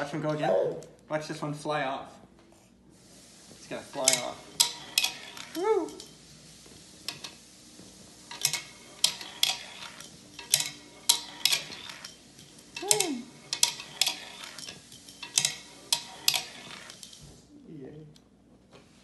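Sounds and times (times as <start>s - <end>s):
toy cars clacking on wooden ramp: 4.0s - 6.1s, 8.3s - 17.2s.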